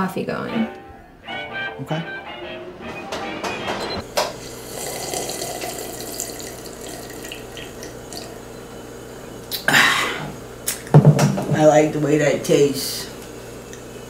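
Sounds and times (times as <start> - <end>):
tap water running into sink: 4.1 - 8.4.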